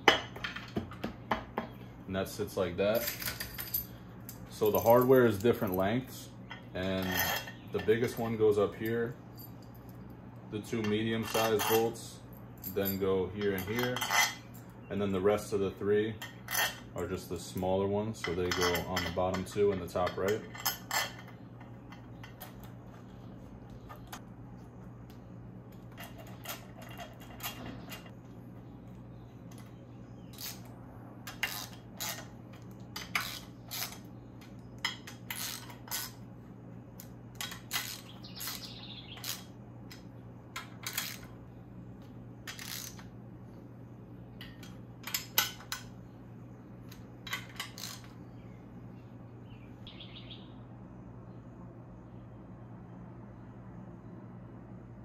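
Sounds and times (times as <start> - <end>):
steady low hum: 0.0 - 55.0
metallic clinks of tools and bolts: 2.9 - 5.9, 10.7 - 14.7.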